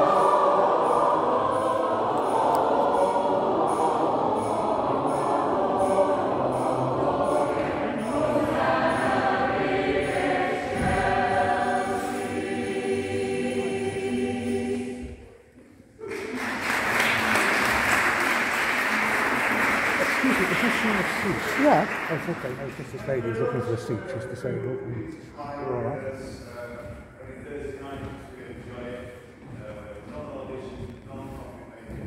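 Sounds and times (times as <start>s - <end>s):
choir singing: 0.0s - 22.5s
applause: 16.1s - 23.2s.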